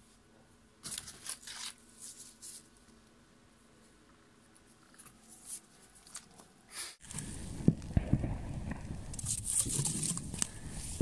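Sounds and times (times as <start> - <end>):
paper rustling in cardboard box: 0.8 - 2.7.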